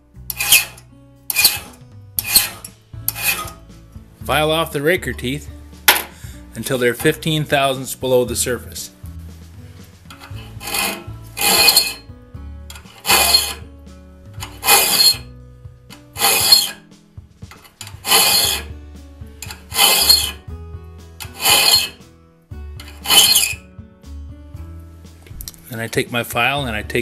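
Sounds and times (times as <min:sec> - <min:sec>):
hand file scraping saw teeth: 0:00.3 - 0:03.7, 0:10.1 - 0:12.1, 0:12.7 - 0:13.7, 0:14.4 - 0:15.3, 0:16.0 - 0:16.8, 0:17.5 - 0:18.8, 0:19.4 - 0:20.4, 0:21.2 - 0:22.0, 0:22.8 - 0:23.6.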